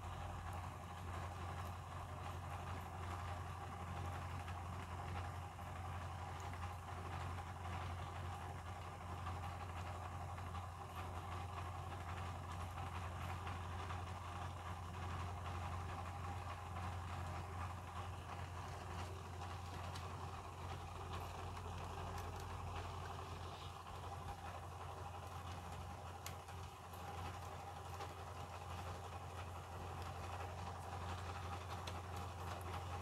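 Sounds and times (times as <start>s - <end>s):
low machine hum: 0.0s - 33.0s.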